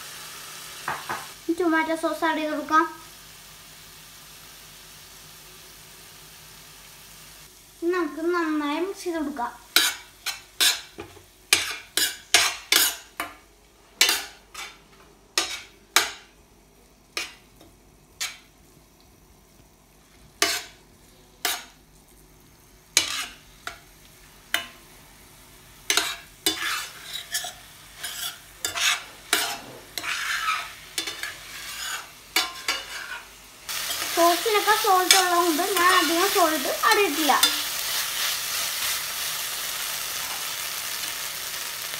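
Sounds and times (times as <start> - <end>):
frying sizzle: 0.0 - 41.9
metal spatula scraping a pan: 9.7 - 13.3, 14.0 - 16.2, 20.4 - 20.8, 21.4 - 21.8, 23.0 - 23.8, 25.9 - 39.2.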